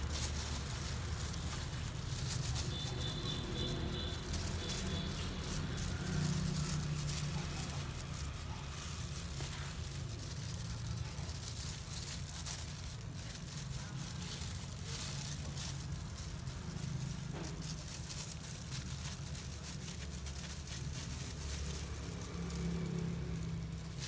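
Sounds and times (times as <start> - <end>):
brush scrubbing wet hair: 0.0 - 24.0.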